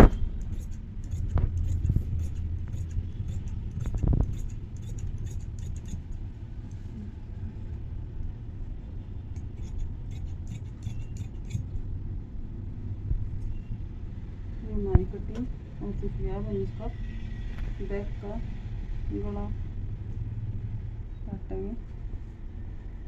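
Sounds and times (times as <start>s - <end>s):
shears snipping fabric: 0.0s - 6.2s, 9.4s - 11.6s
steady low hum: 0.0s - 23.0s.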